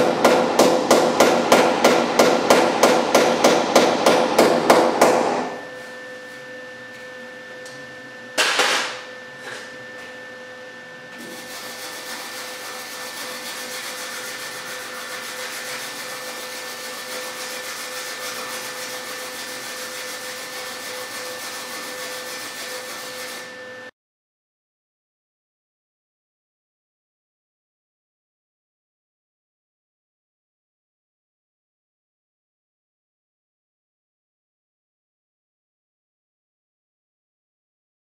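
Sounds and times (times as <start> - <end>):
hammer blow on sheet metal: 0.0 - 6.2.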